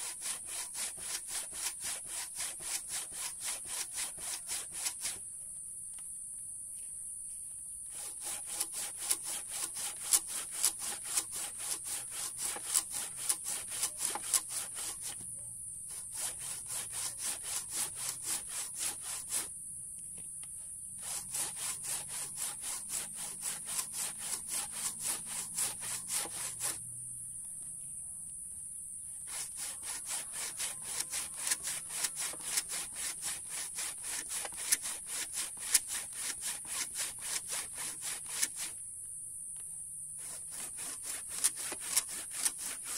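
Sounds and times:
handsaw cutting hard wood: 0.0 - 5.2, 7.9 - 15.2, 15.9 - 19.5, 21.0 - 26.8, 29.2 - 38.8, 40.2 - 42.9.

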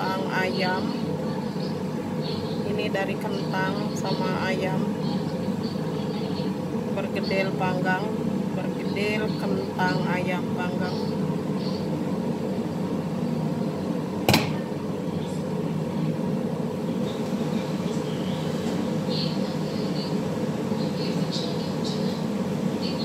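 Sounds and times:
appliance or fan humming: 0.0 - 23.0
sharp knock: 14.3 - 14.6.

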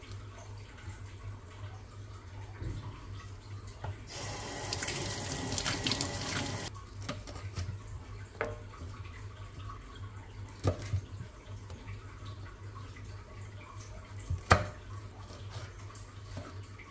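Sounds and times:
water dripping: 0.0 - 6.7
water running from a tap: 0.0 - 6.7.

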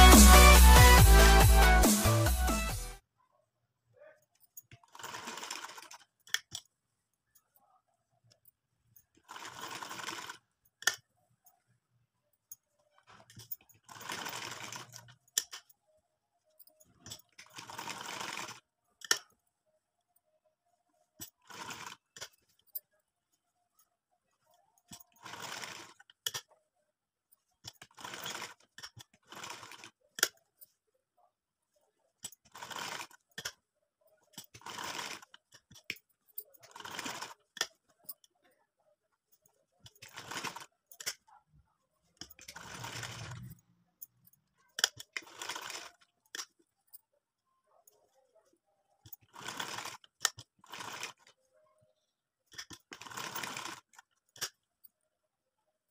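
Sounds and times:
sewing machine stitching: 4.7 - 6.6, 9.1 - 11.0, 12.9 - 15.7, 16.9 - 19.3, 21.2 - 22.6, 24.9 - 26.6, 27.6 - 30.4, 32.2 - 33.6, 34.3 - 38.2, 39.8 - 41.3, 42.2 - 43.6, 44.8 - 46.5, 49.0 - 51.3, 52.5 - 54.6.

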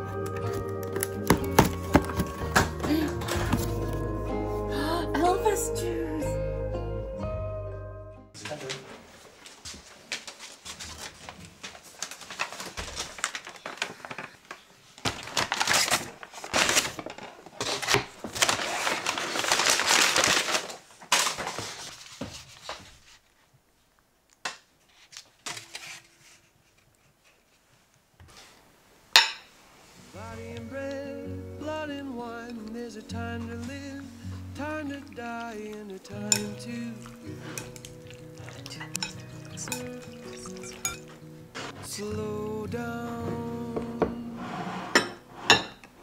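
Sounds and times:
paper bag rustling: 0.0 - 4.2, 8.4 - 23.5, 33.3 - 42.2
containers clicking and clunking: 34.7 - 41.8.

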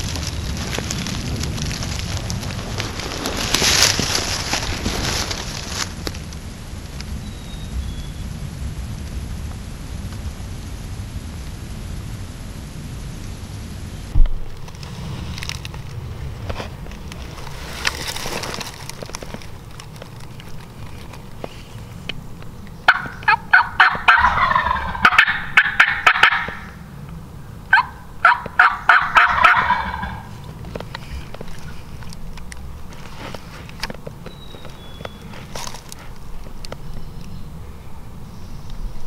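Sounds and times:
turkey gobbling: 22.9 - 26.8, 27.7 - 30.5.

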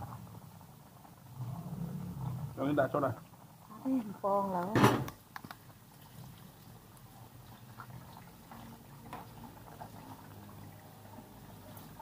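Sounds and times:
liquid bubbling: 0.0 - 12.0
small clicks and taps: 4.6 - 5.6.

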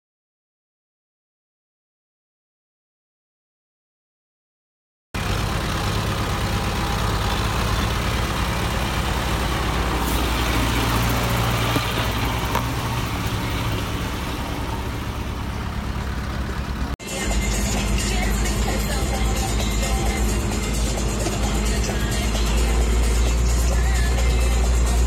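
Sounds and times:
tractor diesel engine running: 5.2 - 25.0.

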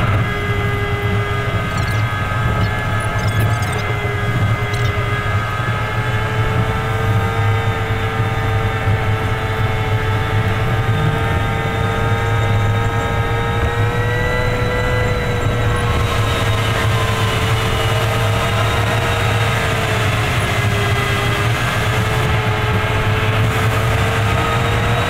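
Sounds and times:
truck engine and road drone: 0.0 - 25.0.

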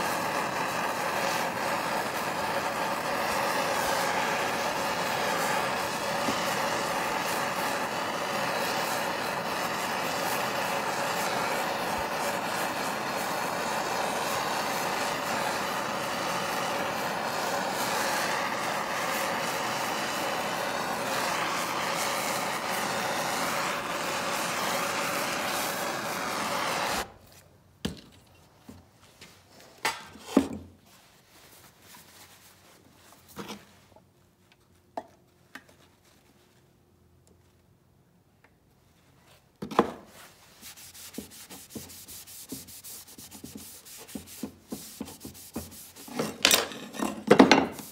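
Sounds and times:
gas torch hissing: 0.0 - 27.2, 40.7 - 46.8, 47.4 - 47.9.

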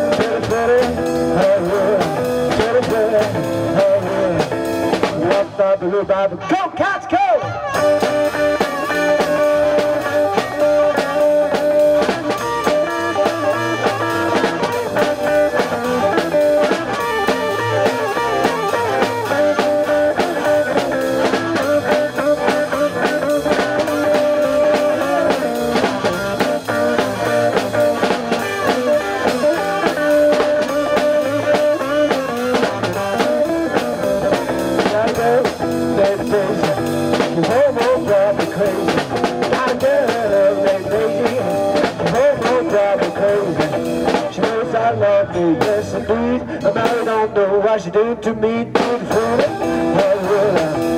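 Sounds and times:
blues band playing: 0.0 - 50.9
harmonica bending notes: 7.4 - 44.3.

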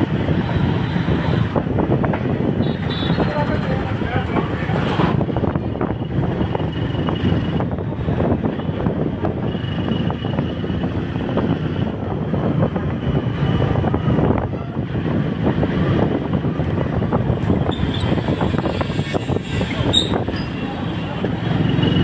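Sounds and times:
vehicle rumble: 0.0 - 22.0
wind buffeting microphone: 0.0 - 22.0.

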